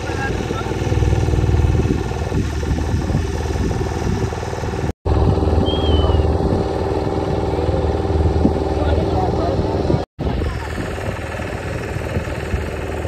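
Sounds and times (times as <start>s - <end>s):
motorboat engine running: 0.0s - 13.0s.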